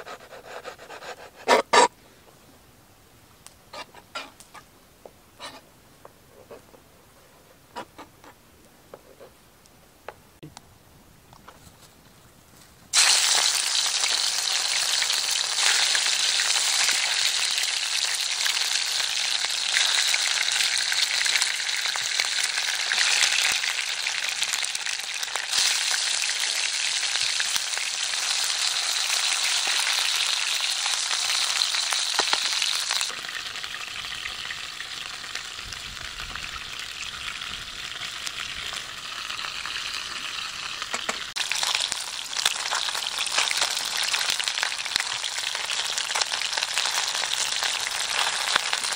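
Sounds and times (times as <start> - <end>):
fish sizzling in hot oil: 12.9 - 48.9.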